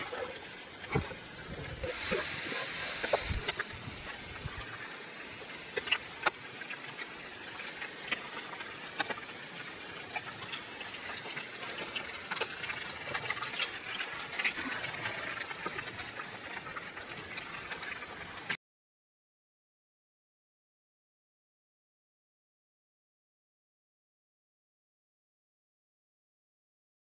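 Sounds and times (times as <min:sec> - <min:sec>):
food frying in oil: 0:00.0 - 0:18.6.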